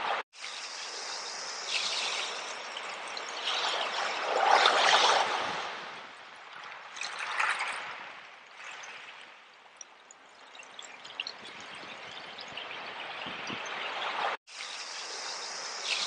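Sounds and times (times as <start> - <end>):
small waves washing over pebbles: 2.2 - 11.3.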